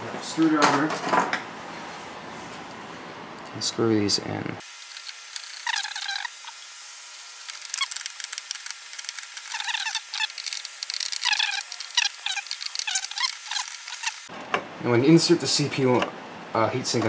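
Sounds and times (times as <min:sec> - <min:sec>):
screws squeaking into plastic: 0:05.0 - 0:06.6, 0:07.5 - 0:14.3.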